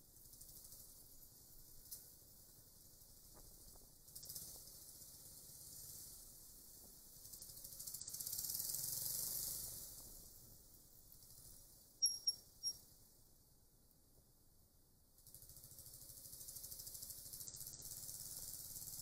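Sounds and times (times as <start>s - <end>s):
faint high hiss: 0.0s - 19.0s
short high-pitched chirps: 12.0s - 12.8s.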